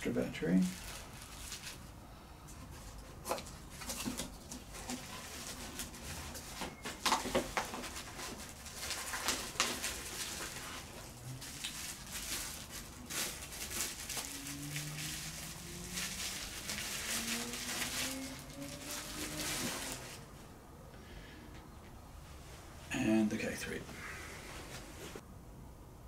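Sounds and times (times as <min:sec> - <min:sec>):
hands rummaging in cardboard box: 0:02.6 - 0:20.2.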